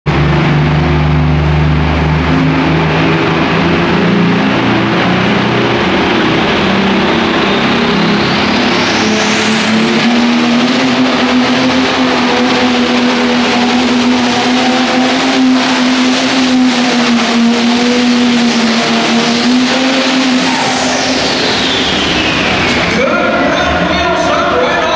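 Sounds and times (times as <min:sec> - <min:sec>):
high whine: 0:00.0 - 0:24.9
tractor engine at full throttle: 0:00.0 - 0:24.9.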